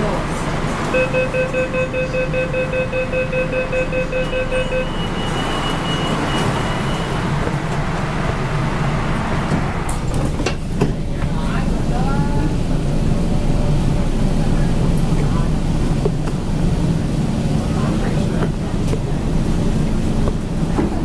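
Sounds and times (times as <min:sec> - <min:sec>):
train humming: 0:00.0 - 0:21.0
higher faint beeping: 0:01.0 - 0:07.3.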